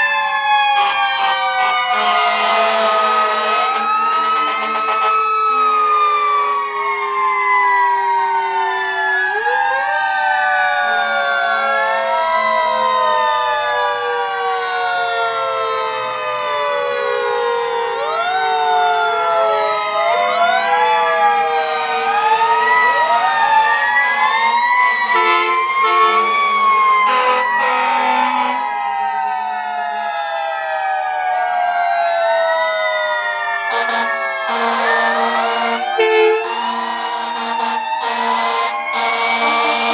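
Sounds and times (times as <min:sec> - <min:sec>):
fire truck sirens wailing: 0:00.0 - 0:39.9
low horn tones: 0:01.6 - 0:05.8, 0:24.0 - 0:28.7, 0:33.7 - 0:39.9.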